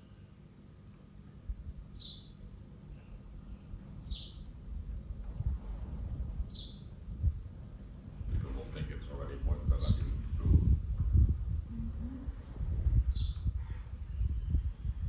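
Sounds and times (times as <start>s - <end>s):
low rumble: 1.4s - 15.0s
bird chirping: 1.9s - 4.5s, 6.4s - 7.0s, 9.7s - 10.2s, 13.1s - 14.3s.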